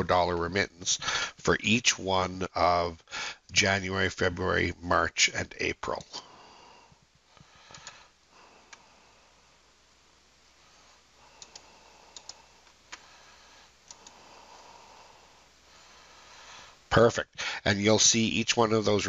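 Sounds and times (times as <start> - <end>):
faint low hum: 0.0 - 19.0
computer mouse clicks: 7.7 - 8.0, 11.4 - 13.1, 13.8 - 14.2.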